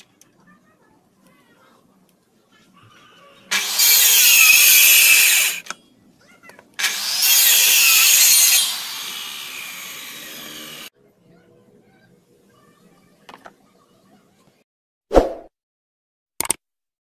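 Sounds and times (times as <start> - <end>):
circular saw cutting timber: 3.5 - 5.6, 6.8 - 10.9.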